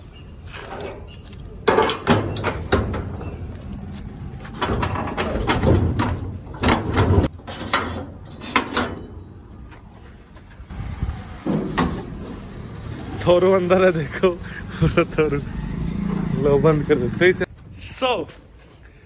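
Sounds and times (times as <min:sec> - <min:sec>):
metal gate clanking and rattling: 0:00.5 - 0:03.6, 0:04.4 - 0:09.4
metal bolt sliding on gate: 0:04.6 - 0:09.3.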